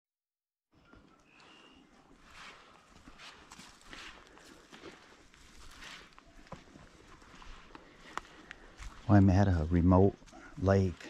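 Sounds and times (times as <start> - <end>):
faint outdoor ambience: 0.7 - 11.0.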